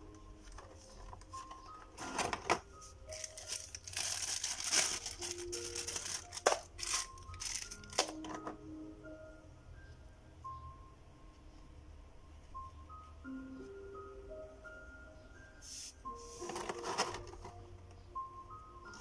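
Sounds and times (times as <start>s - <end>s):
light background music: 0.0s - 19.0s
plastic bag crinkling: 2.1s - 8.2s.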